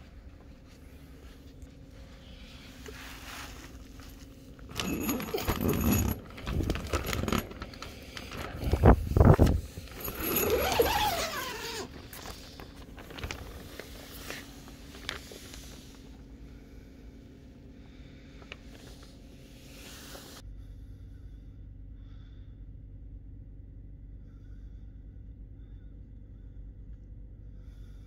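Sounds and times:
faint low hum: 0:00.0 - 0:28.0
crinkling plastic: 0:03.5 - 0:16.0
tape squealing peel: 0:10.0 - 0:12.4.

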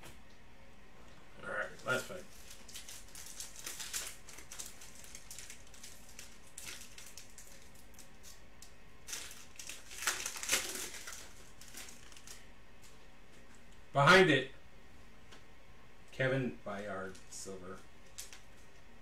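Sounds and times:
foil wrapper crinkling: 0:01.8 - 0:08.4, 0:09.1 - 0:12.4, 0:18.0 - 0:18.7.

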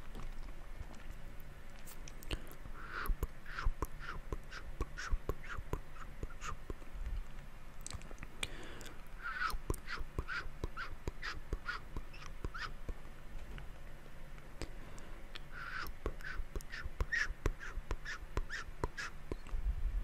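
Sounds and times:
tongue clicks and smacks: 0:02.0 - 0:06.9, 0:07.8 - 0:13.0.

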